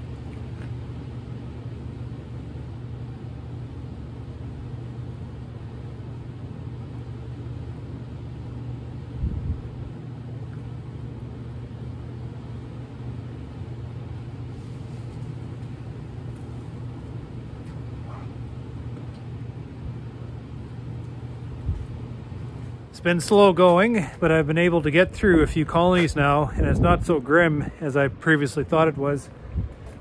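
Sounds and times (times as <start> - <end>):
engine idling hum: 0.0 - 30.0.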